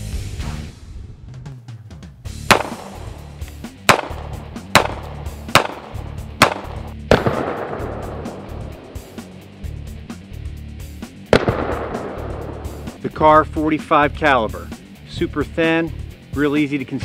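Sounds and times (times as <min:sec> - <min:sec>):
background music: 0:00.0 - 0:17.0
pistol shots: 0:02.5 - 0:09.0, 0:11.3 - 0:13.0.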